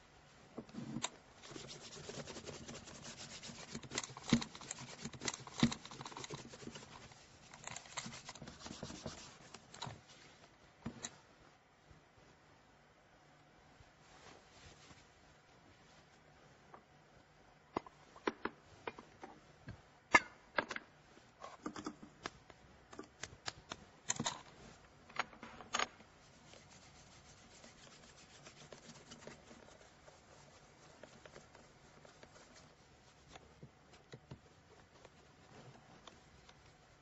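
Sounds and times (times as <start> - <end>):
polishing cloth rubbing leather shoe: 1.4 - 7.1, 26.3 - 33.3.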